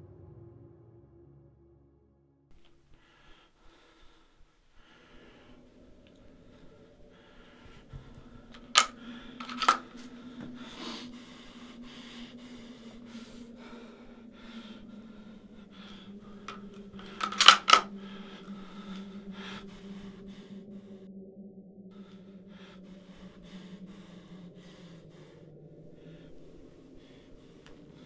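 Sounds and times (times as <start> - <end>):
low steady hum: 2.5 - 28.0
sharp clicks: 7.9 - 10.0, 15.8 - 18.6.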